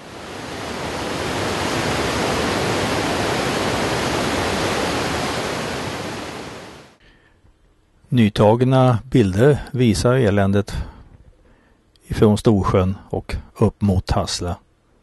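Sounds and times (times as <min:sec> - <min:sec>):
water rushing through dam gates: 0:00.0 - 0:06.9.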